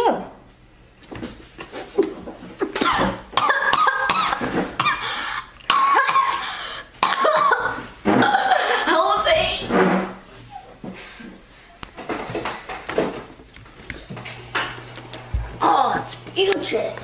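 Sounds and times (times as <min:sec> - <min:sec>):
boy coughing and gagging: 0:02.8 - 0:09.2.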